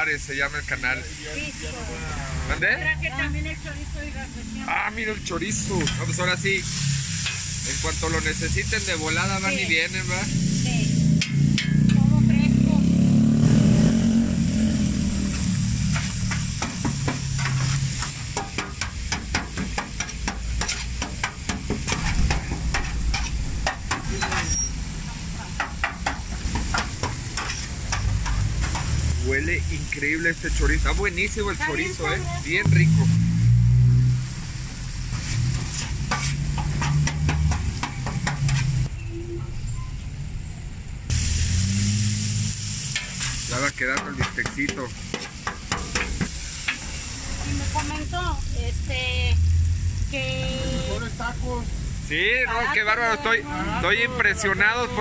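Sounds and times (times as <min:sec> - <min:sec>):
meat sizzling on griddle: 0:00.0 - 0:39.3, 0:41.1 - 0:55.0
metal spatula scraping steel: 0:05.3 - 0:07.6, 0:11.2 - 0:12.0, 0:15.3 - 0:29.0, 0:35.1 - 0:40.0, 0:42.9 - 0:48.0.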